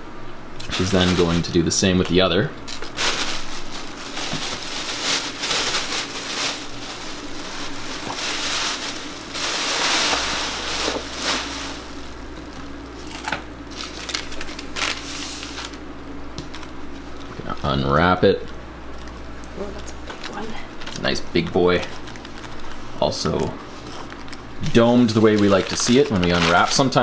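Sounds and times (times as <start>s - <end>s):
plastic bag crinkling: 0.7s - 1.5s, 2.7s - 15.8s, 19.9s - 27.0s.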